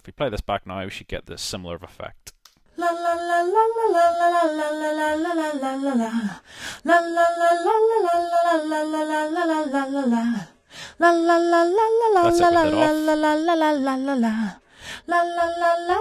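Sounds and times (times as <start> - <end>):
unaccompanied chorus vocal: 2.8 - 14.5.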